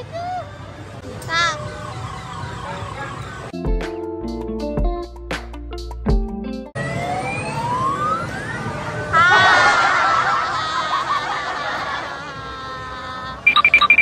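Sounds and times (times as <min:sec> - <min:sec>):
electronic beeps: 0:13.5 - 0:14.0
warbling electronic jingle: 0:13.5 - 0:14.0.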